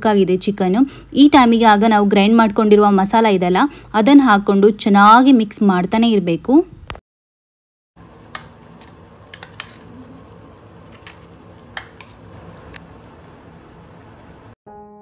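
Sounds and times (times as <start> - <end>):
metal spoon scraping a pan: 8.8 - 10.0, 10.8 - 12.2.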